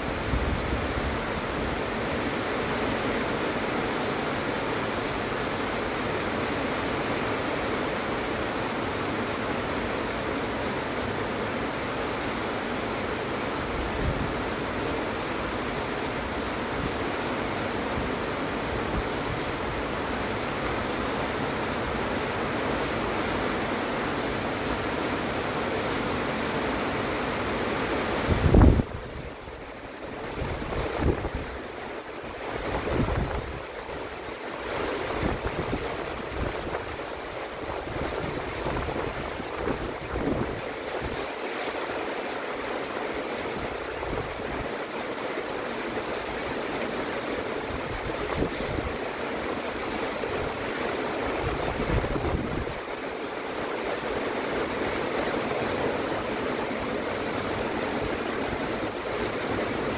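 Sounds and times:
heavy rain: 0.0 - 59.9
wind buffeting microphone: 28.2 - 29.3, 32.6 - 33.7, 37.7 - 41.2, 51.3 - 52.8.

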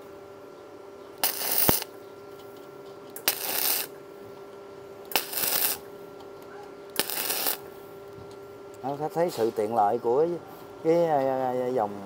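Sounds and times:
faint hum: 0.0 - 12.0
welding arc crackling: 1.2 - 2.0, 3.1 - 4.0, 5.0 - 5.9, 6.9 - 7.7.

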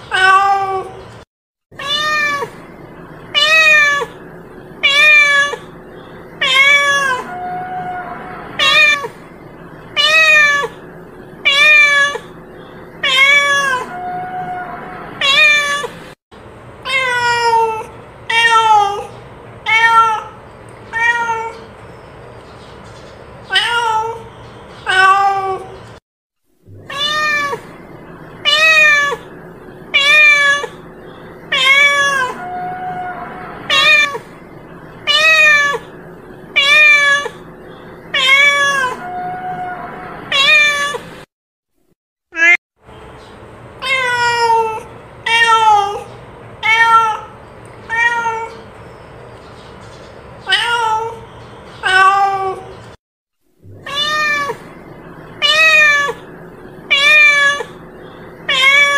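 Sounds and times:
cat meowing: 0.0 - 1.0, 1.8 - 2.6, 3.3 - 4.2, 4.8 - 5.7, 6.4 - 9.2, 10.0 - 10.8, 11.4 - 12.4, 13.0 - 15.9, 16.9 - 21.6, 23.5 - 25.7, 26.8 - 27.7, 28.4 - 29.3, 29.9 - 30.8, 31.5 - 34.3, 35.0 - 35.9, 36.6 - 37.5, 38.1 - 41.1, 42.4 - 42.6, 43.8 - 48.6, 50.4 - 51.2, 51.8 - 52.7, 53.7 - 54.8, 55.4 - 56.3, 56.9 - 57.8, 58.4 - 58.9.

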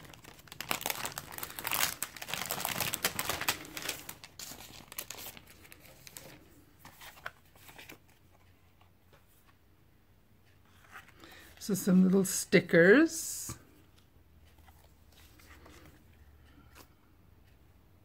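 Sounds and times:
plastic packaging crinkling: 0.0 - 8.0.

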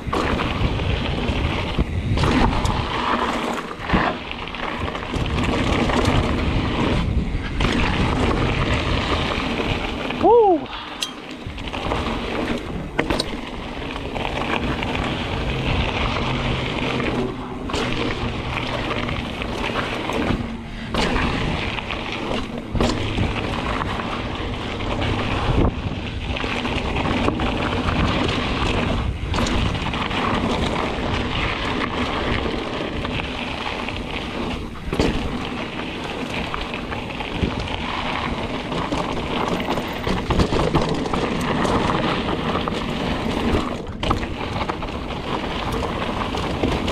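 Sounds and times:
wind on microphone: 0.0 - 35.6
bike knocks and rattles: 0.0 - 46.9
tyre noise: 0.0 - 46.9.

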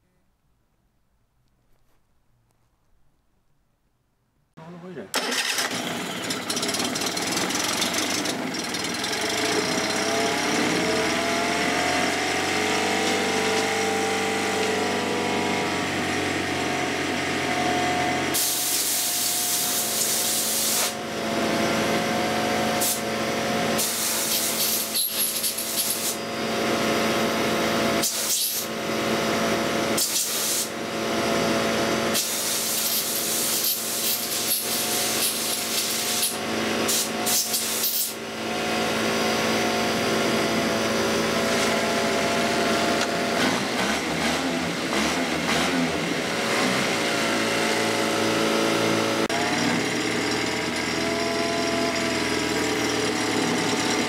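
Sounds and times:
outboard engine running: 5.5 - 16.6
short bursts of hissing: 18.4 - 21.0, 23.8 - 26.2, 28.0 - 28.7, 30.0 - 30.7, 32.2 - 38.2.

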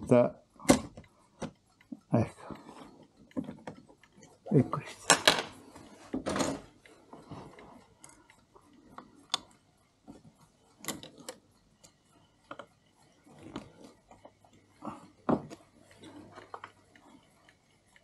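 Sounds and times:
clock key clicks and metal knocks: 0.5 - 4.4, 10.8 - 11.4.

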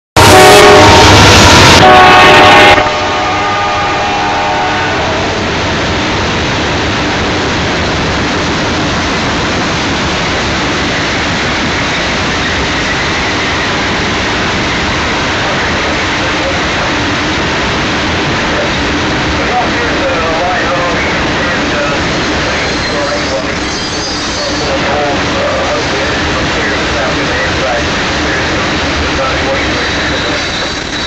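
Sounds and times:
diesel locomotive horn chord: 0.2 - 5.5
freight cars rumbling on rails: 0.2 - 31.0.

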